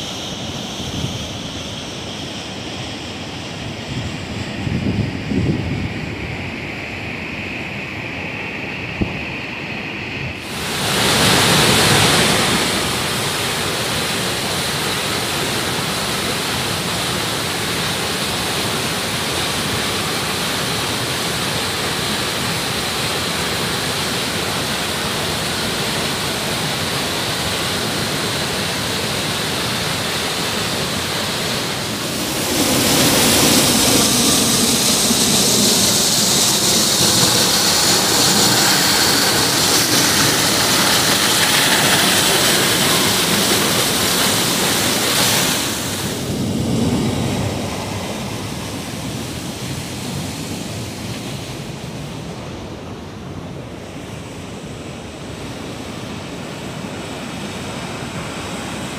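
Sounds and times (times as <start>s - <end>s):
waterfall rushing over boulders: 10.4s - 46.5s.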